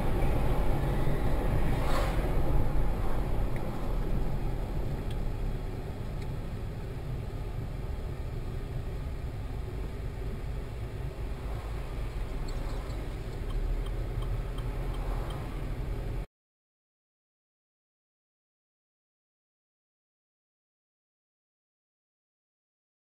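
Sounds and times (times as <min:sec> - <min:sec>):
car engine rumble and road noise: 0:00.0 - 0:16.3
faint regular ticking: 0:12.1 - 0:15.4.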